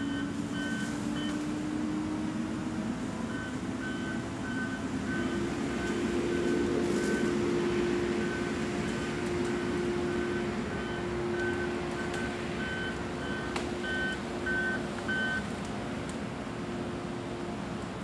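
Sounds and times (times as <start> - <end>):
backup alarm beeping: 0.0 - 1.4, 3.3 - 7.4, 8.2 - 15.4
diesel engine running: 0.0 - 18.0.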